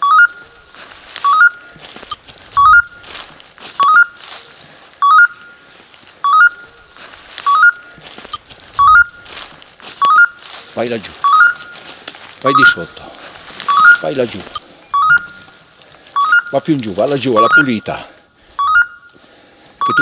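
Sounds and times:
rising electronic chirps: 0:00.0 - 0:00.4, 0:01.2 - 0:01.6, 0:02.6 - 0:03.1, 0:03.8 - 0:04.2, 0:05.0 - 0:05.6, 0:06.2 - 0:06.7, 0:08.8 - 0:09.3, 0:10.0 - 0:10.4, 0:11.2 - 0:11.8, 0:12.5 - 0:13.0, 0:13.7 - 0:15.5, 0:16.2 - 0:16.7, 0:18.6 - 0:19.2.

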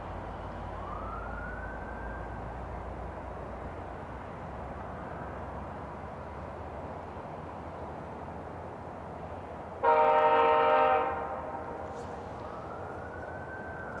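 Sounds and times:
locomotive air horn blast: 0:09.8 - 0:12.3.

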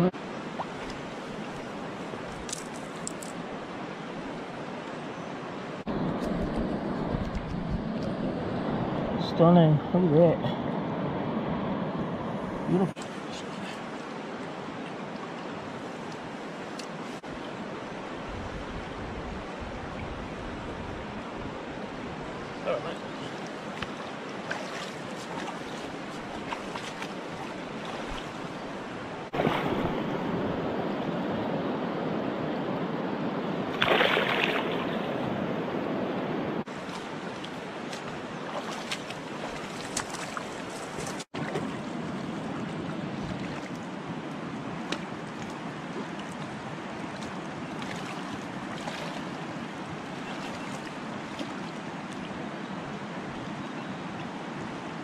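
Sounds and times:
legs wading through water: 0:00.2 - 0:04.4, 0:21.7 - 0:30.4, 0:33.7 - 0:35.2, 0:36.6 - 0:55.0
river rushing over stones: 0:20.4 - 0:55.0
fish splashing in water: 0:33.8 - 0:34.8.

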